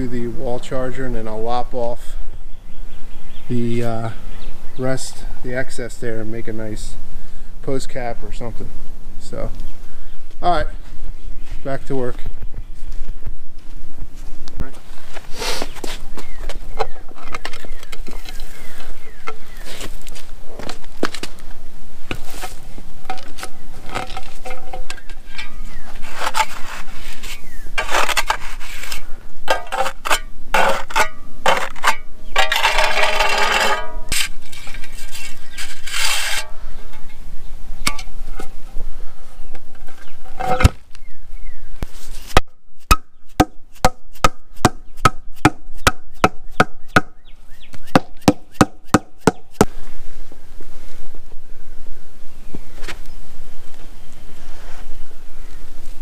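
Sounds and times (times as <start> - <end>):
hand tool scraping gravel: 15.0 - 16.0, 22.1 - 37.2, 39.8 - 40.9.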